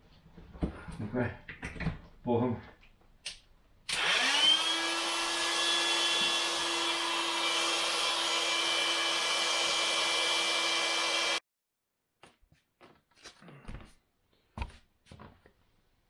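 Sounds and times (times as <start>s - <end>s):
electric air pump motor whining: 3.9s - 11.4s.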